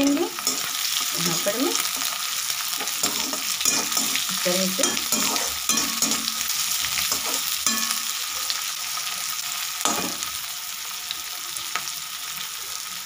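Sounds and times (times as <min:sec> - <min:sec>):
vegetables sizzling in hot oil: 0:00.0 - 0:13.0
spoon scraping a pan: 0:00.2 - 0:08.7.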